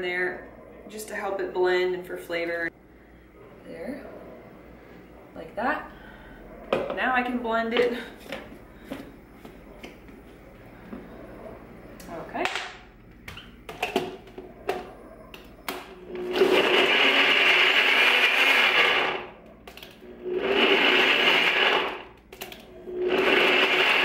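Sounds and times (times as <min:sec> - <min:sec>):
blender grinding: 0:15.7 - 0:24.0.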